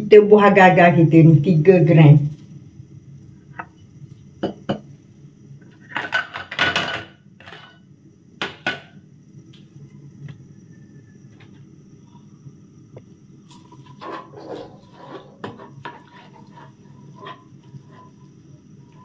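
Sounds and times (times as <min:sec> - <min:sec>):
clinks and knocks of kitchenware: 0:05.9 - 0:07.8.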